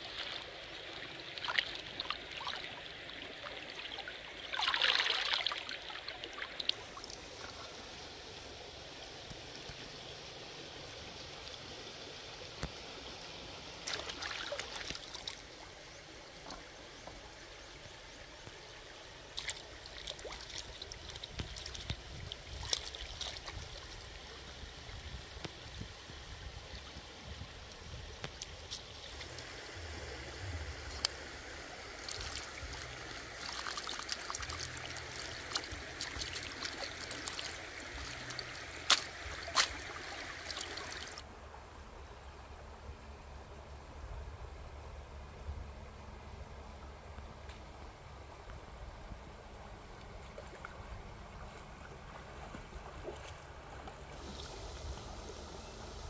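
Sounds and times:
splashing and sloshing water: 0.0s - 7.8s, 13.8s - 16.7s, 19.2s - 24.4s, 28.1s - 41.3s, 49.8s - 55.7s
stream water trickling: 0.0s - 43.9s, 44.7s - 56.0s.

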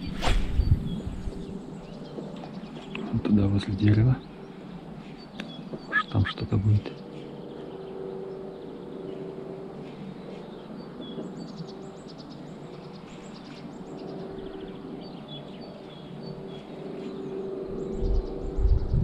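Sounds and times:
low rumble: 0.0s - 1.9s, 17.7s - 19.0s
small birds chirping: 0.0s - 19.0s.

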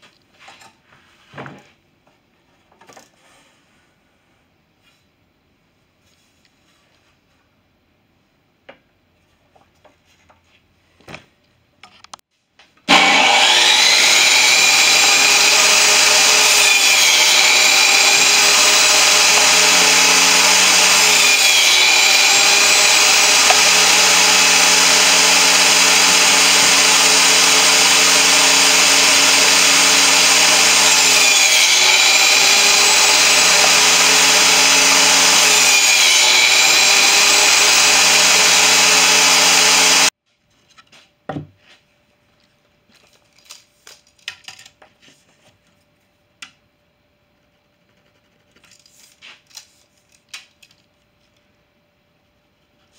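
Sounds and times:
table saw cutting board: 12.9s - 40.1s.

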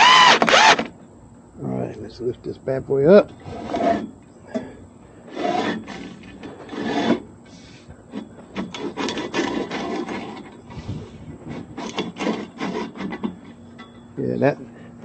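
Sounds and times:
equipment scraping and rubbing: 3.4s - 4.2s, 5.2s - 13.7s.

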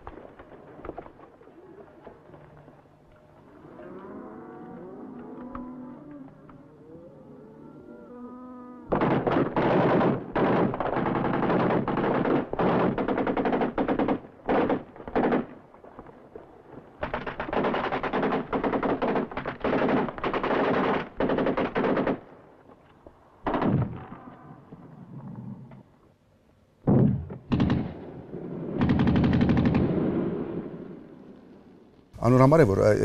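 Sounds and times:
automatic gunfire bursts: 8.9s - 15.5s, 17.0s - 22.2s, 28.8s - 30.0s.

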